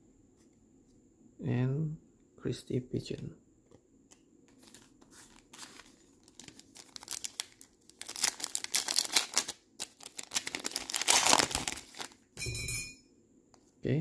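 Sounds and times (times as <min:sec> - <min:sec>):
foil wrapper tearing and crinkling: 0:04.7 - 0:12.2.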